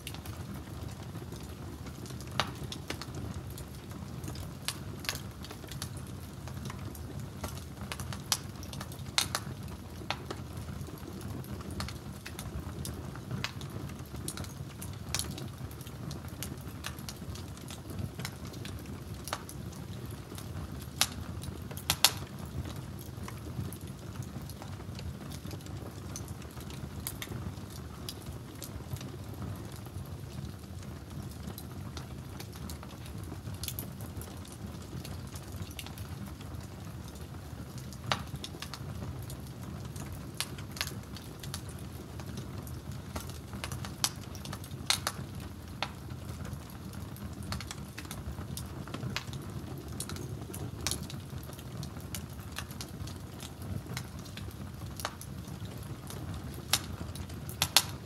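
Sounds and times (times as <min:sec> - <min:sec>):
sharp pops of fire: 0:00.0 - 0:30.6, 0:31.4 - 0:58.0
wood fire crackling: 0:00.0 - 0:58.0
pot boiling: 0:34.9 - 0:58.0.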